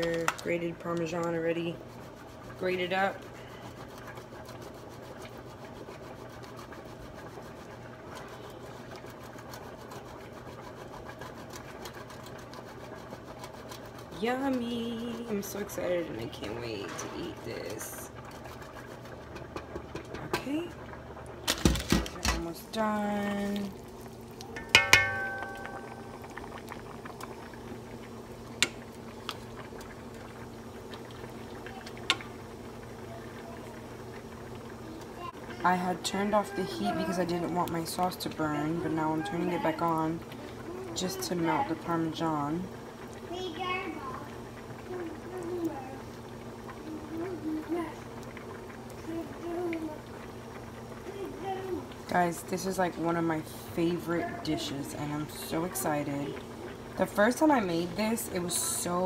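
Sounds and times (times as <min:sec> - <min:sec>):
steady hiss and low hum: 0:00.0 - 0:59.0
spatula stirring thick sauce: 0:01.8 - 0:16.4
spatula clacking against pan: 0:24.6 - 0:25.7.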